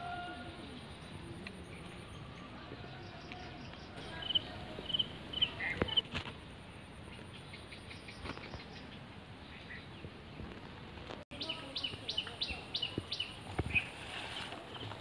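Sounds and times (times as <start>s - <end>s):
bird chirping: 0.8s - 6.0s, 11.3s - 13.9s.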